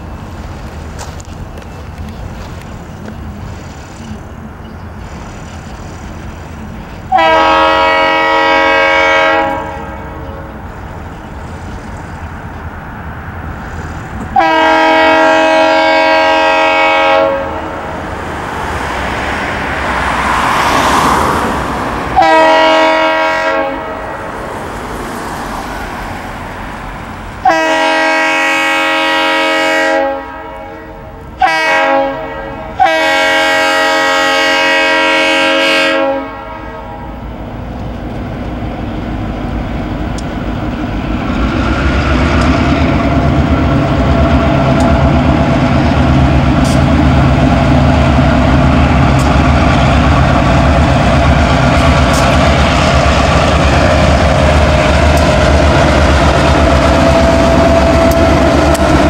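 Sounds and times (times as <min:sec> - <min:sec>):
train rumble: 0:00.0 - 0:59.0
locomotive air horn blasts: 0:07.1 - 0:10.5, 0:14.3 - 0:17.8, 0:22.1 - 0:24.2, 0:27.4 - 0:37.2.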